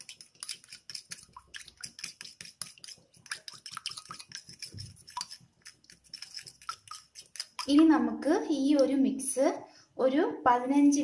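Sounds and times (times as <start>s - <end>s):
spoon clinking and scraping glass bowl: 0.0s - 7.8s.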